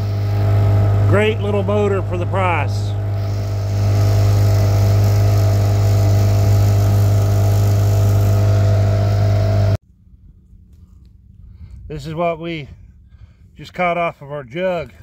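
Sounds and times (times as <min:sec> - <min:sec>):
outboard motor running: 0:00.0 - 0:09.8.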